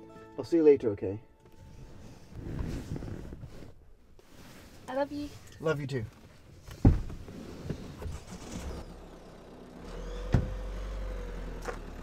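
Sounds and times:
car door shutting: 6.7 - 9.0, 10.0 - 10.8.

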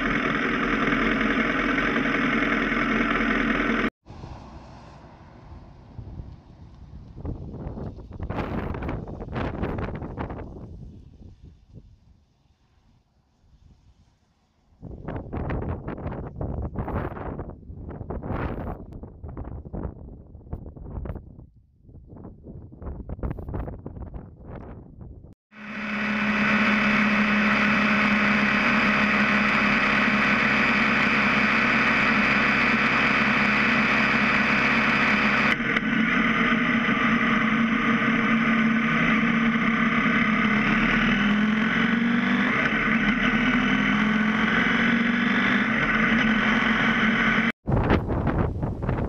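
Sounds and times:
motorcycle engine running: 0.0 - 3.9, 25.5 - 49.0
wind and road noise: 0.0 - 49.0.

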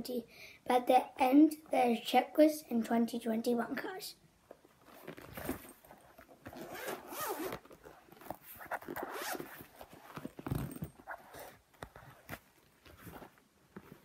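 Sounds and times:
album rustling: 4.4 - 14.0
zipper being pulled: 4.8 - 14.0.

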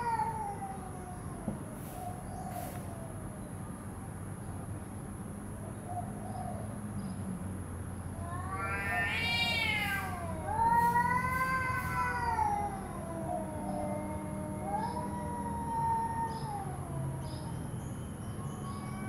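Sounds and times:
cats yowling: 0.0 - 3.1, 8.1 - 19.0.

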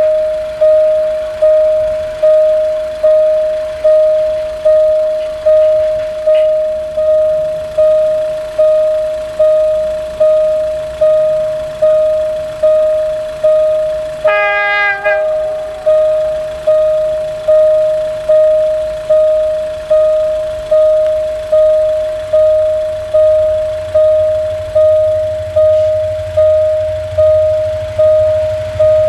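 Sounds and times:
level crossing bell dinging: 0.0 - 29.0
locomotive horn blast: 14.2 - 15.9.

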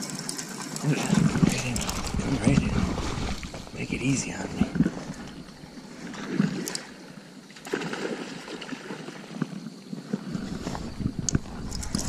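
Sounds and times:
river water sloshing on gravel: 0.0 - 12.0
low rumble: 1.2 - 5.8.

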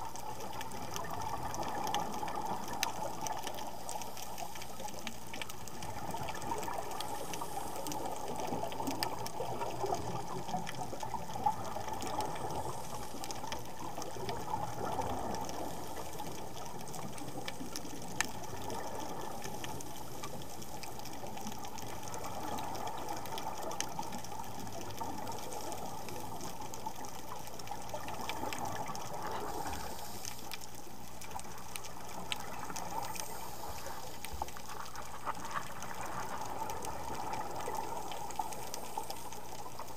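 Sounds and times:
underwater rushing water: 0.0 - 39.9.

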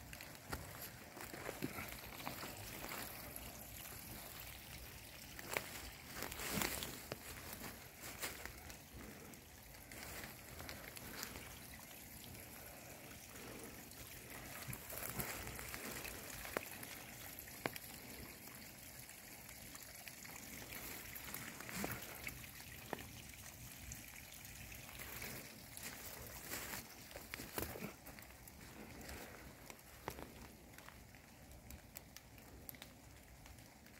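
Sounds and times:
faint stream trickling: 0.0 - 33.9.

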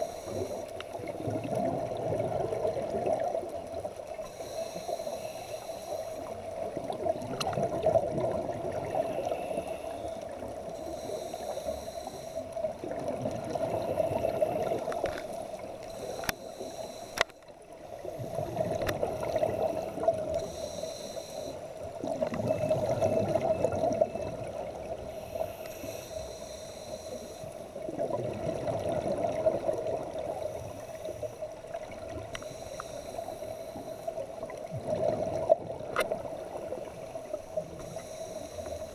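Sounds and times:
diver inhaling through regulator: 0.0 - 0.8, 4.2 - 6.4, 8.8 - 10.2, 10.8 - 12.6, 13.5 - 24.2, 25.1 - 27.8, 32.3 - 34.2, 37.3 - 38.9
exhaled bubbles gurgling underwater: 0.0 - 38.9
faint clicks: 0.2 - 1.0, 2.8 - 7.9, 9.1 - 17.7, 18.6 - 24.7, 25.4 - 27.6, 30.7 - 34.7, 35.4 - 38.9.

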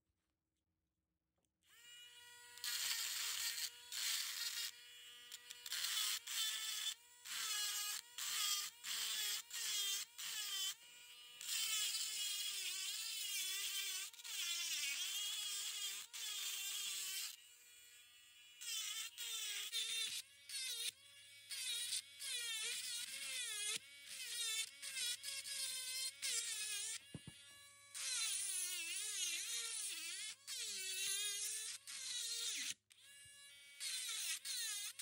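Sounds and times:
rotary tool motor whine: 1.7 - 35.0.

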